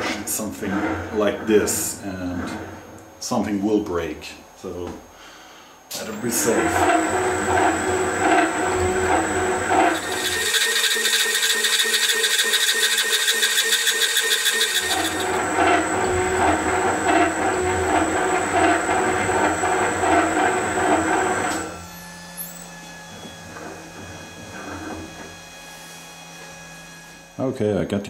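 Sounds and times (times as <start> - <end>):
metal shaper ram stroking: 6.3 - 25.3.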